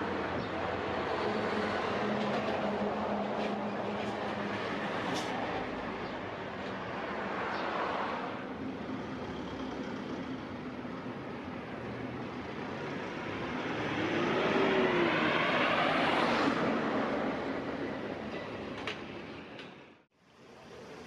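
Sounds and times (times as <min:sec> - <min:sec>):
vehicle passing by: 0:11.8 - 0:18.3.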